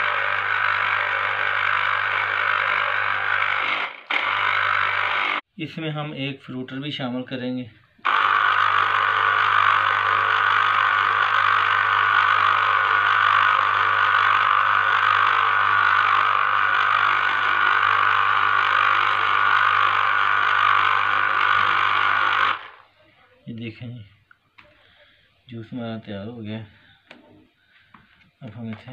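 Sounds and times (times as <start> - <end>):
electric juicer motor whirring: 0.0 - 5.4, 8.0 - 22.8.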